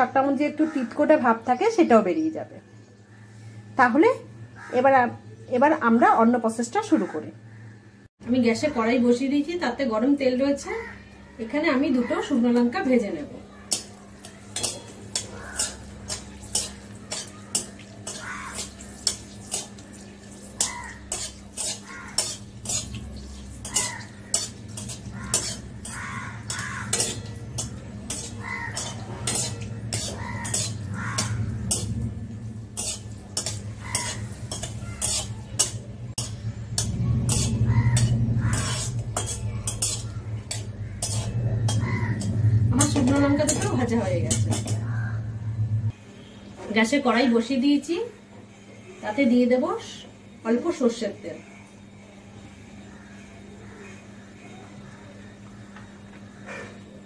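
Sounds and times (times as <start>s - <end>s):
chillies sizzling in oil: 11.5s - 44.9s
metal spatula scraping a pan: 13.7s - 44.9s.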